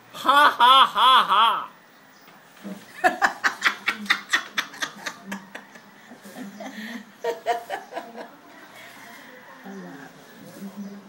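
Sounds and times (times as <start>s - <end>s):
elderly woman laughing: 0.2s - 1.7s, 2.9s - 8.3s.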